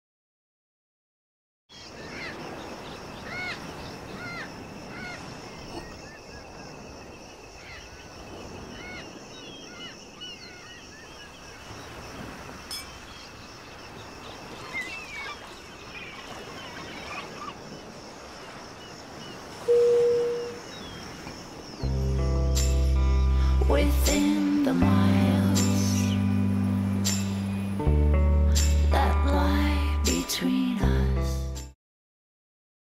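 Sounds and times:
seagulls calling: 1.7s - 6.9s, 7.6s - 12.0s, 12.8s - 21.6s
sea surf: 1.7s - 31.3s
short loud steady tone: 19.7s - 20.6s.

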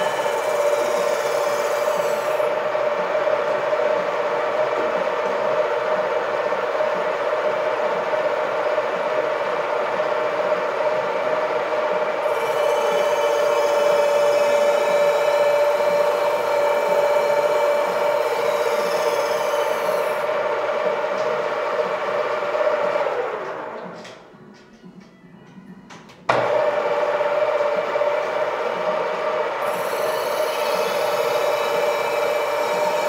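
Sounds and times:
end mill cutting wood: 0.0s - 6.2s, 12.0s - 24.2s, 26.3s - 33.0s
milling machine motor: 0.0s - 24.6s, 25.5s - 33.0s.

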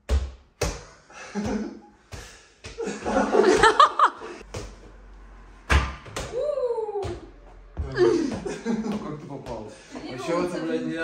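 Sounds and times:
men laughing: 1.1s - 2.0s, 2.8s - 4.4s, 7.8s - 10.6s.

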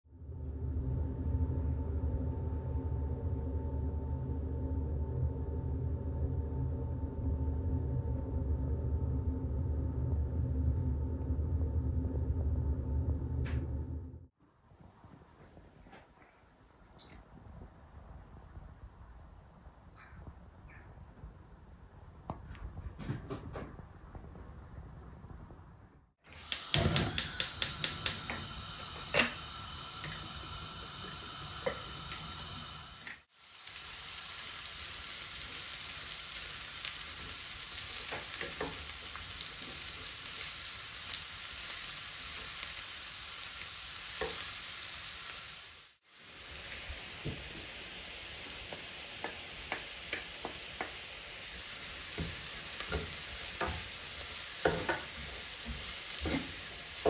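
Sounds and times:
onions sizzling in a frying pan: 26.3s - 57.0s.

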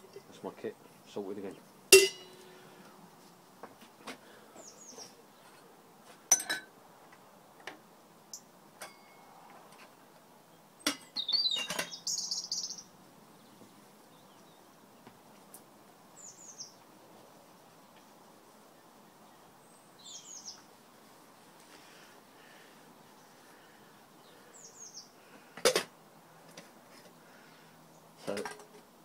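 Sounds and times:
birds chirping: 0.0s - 3.0s, 4.2s - 5.8s, 10.4s - 15.3s, 16.1s - 21.1s, 21.7s - 25.6s
metal tin and lid clinking: 2.0s - 2.4s.

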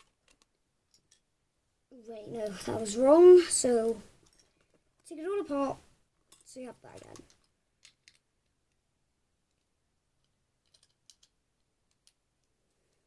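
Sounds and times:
plastic bricks clicking: 6.9s - 8.8s, 9.5s - 13.0s.

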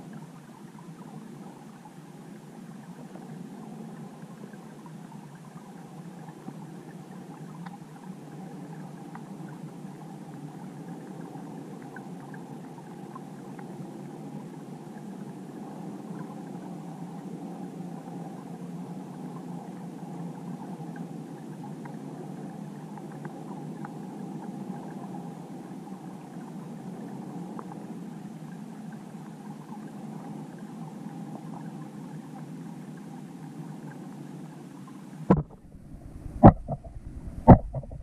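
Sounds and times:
faint scattered ticks: 0.0s - 35.4s
muffled underwater rush: 27.4s - 38.0s.

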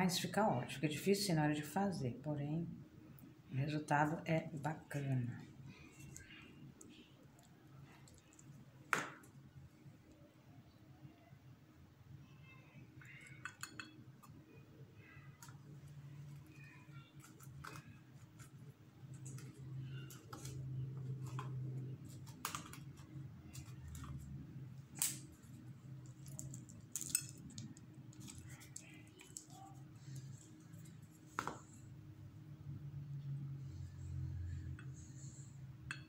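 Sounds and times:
low steady hum: 0.0s - 36.0s.

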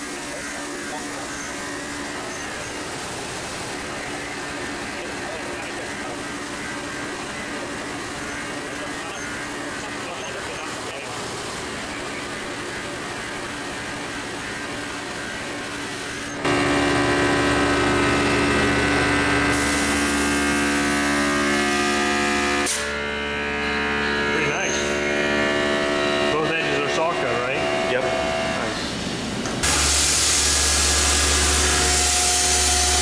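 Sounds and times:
bandsaw cutting metal bar: 15.9s - 28.8s, 29.6s - 33.0s.

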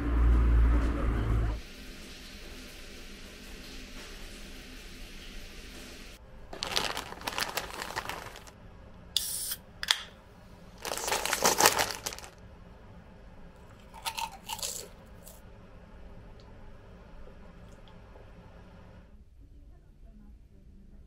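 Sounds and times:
snack bag crinkling: 6.5s - 8.6s, 10.8s - 12.4s, 13.8s - 15.4s.

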